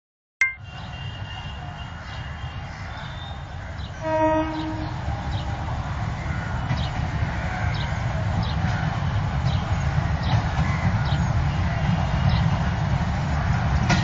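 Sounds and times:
train horn blast: 0:04.0 - 0:05.1.

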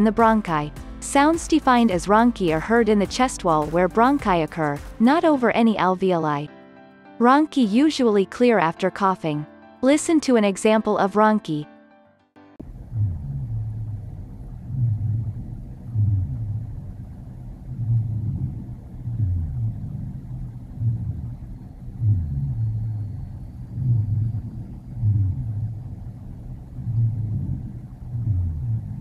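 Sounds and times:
low snoring rattle-like lung sounds: 0:12.6 - 0:29.0.

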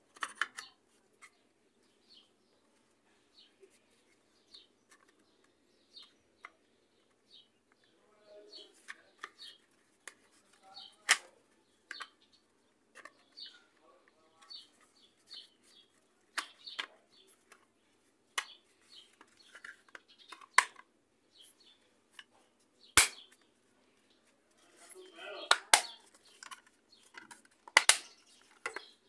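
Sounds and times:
plastic clicks and taps: 0:00.1 - 0:01.4, 0:04.5 - 0:07.9, 0:08.8 - 0:12.2, 0:12.9 - 0:13.6, 0:16.3 - 0:17.7, 0:18.4 - 0:20.9, 0:25.5 - 0:29.0.

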